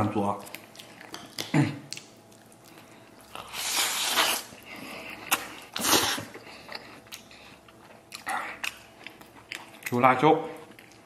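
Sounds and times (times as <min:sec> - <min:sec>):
man chewing: 0:00.2 - 0:11.0
loud slurp: 0:05.8 - 0:06.3.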